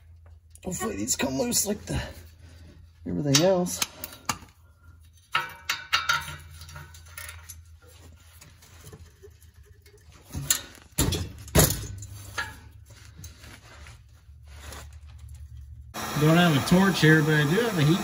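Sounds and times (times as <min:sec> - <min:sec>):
metal tools clinking: 0:05.0 - 0:13.4.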